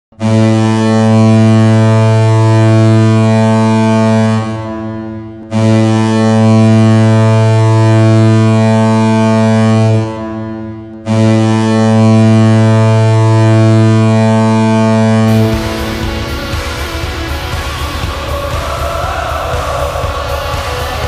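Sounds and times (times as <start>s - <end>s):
goal horn blasts: 13.3s - 21.0s.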